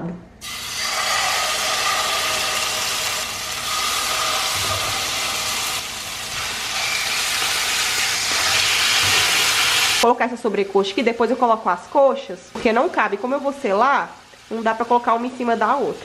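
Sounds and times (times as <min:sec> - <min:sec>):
meat sizzling in a frying pan: 0:00.4 - 0:10.0.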